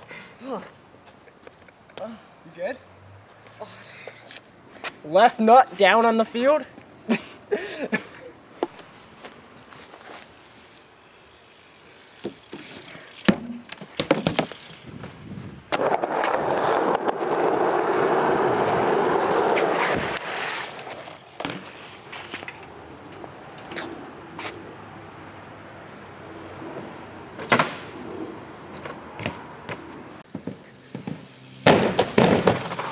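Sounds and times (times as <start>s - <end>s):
bike knocking and clattering: 11.6s - 16.3s, 19.8s - 23.9s, 28.7s - 32.9s
tyres rolling: 11.8s - 24.6s, 26.2s - 32.9s.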